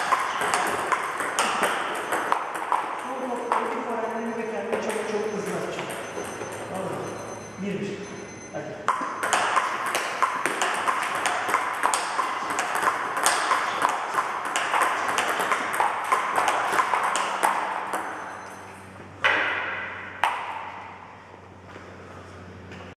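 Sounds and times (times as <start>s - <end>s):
table tennis balls clicking: 0.0s - 6.7s, 8.9s - 18.6s.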